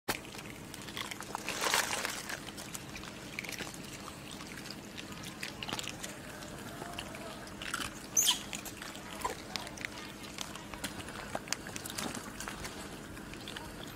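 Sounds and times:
steady low hum: 0.1s - 13.9s
small clicks and rustles: 8.6s - 13.7s.

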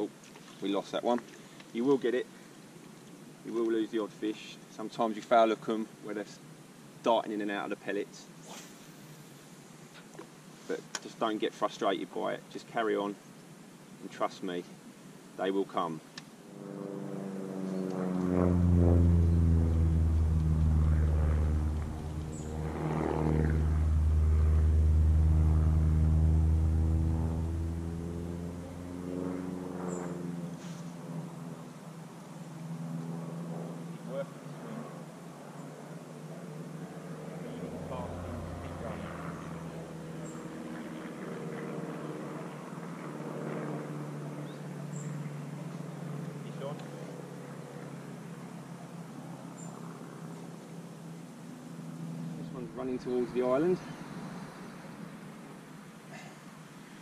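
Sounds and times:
engine running: 16.6s - 31.8s, 36.8s - 44.4s.

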